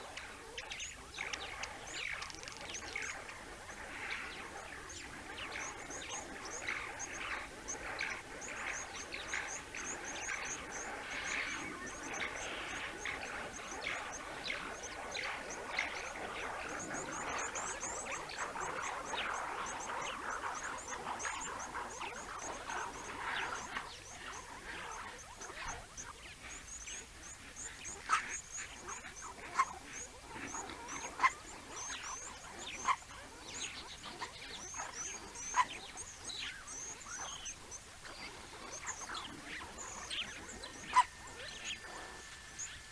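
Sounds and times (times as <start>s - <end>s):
mongoose contact calls: 0.0s - 42.9s.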